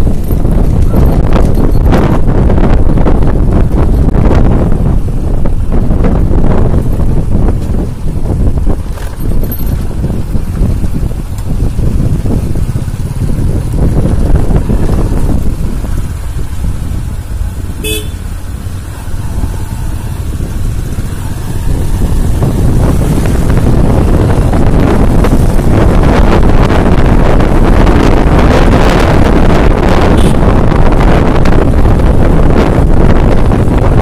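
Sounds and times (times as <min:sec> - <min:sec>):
motorcycle engine running: 0:00.0 - 0:34.0
wind buffeting microphone: 0:00.0 - 0:34.0
short horn toot: 0:17.8 - 0:18.2, 0:30.1 - 0:30.5.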